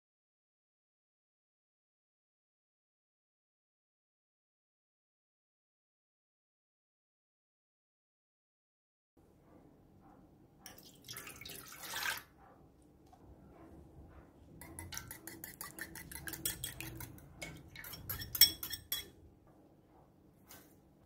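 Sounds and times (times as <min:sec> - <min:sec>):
milk pouring and splashing: 0:10.7 - 0:12.3
whisk clicking against bowl: 0:14.6 - 0:19.1.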